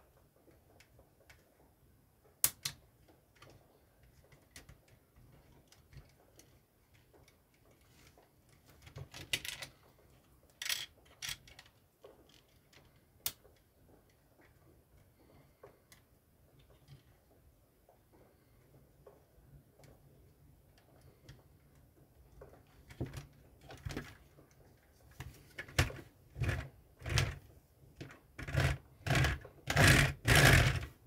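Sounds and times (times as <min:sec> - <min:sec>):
soft handling noise: 0:02.8 - 0:29.6
plastic pieces clicking together: 0:10.5 - 0:13.4.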